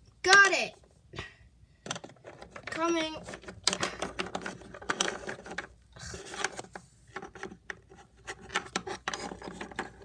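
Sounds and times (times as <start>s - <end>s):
plastic toys clicking and tapping: 1.8s - 10.0s
plastic rubbing on hard surface: 4.6s - 10.0s.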